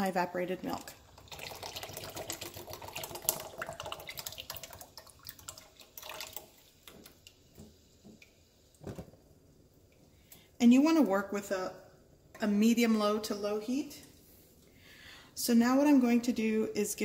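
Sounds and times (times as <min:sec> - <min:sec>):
dripping liquid: 0:00.7 - 0:09.0
milk pouring and glugging: 0:00.8 - 0:09.0.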